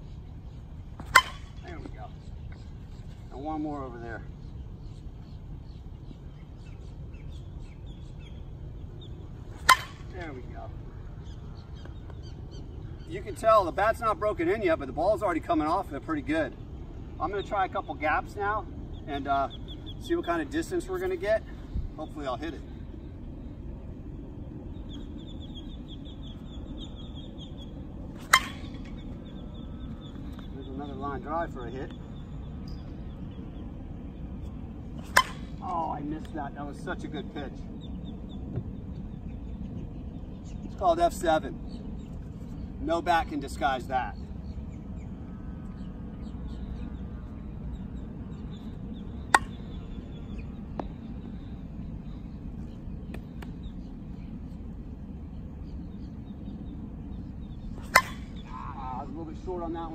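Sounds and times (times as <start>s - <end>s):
faint birdsong: 0.0s - 59.9s
metal bat hitting softball: 1.0s - 1.7s, 9.6s - 10.1s, 28.2s - 28.9s, 35.0s - 35.6s, 49.3s - 49.6s, 57.8s - 58.4s.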